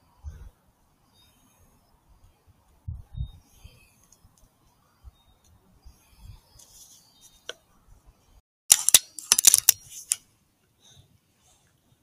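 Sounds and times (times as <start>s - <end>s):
sharp mechanical clicks and clacks: 8.7s - 9.8s.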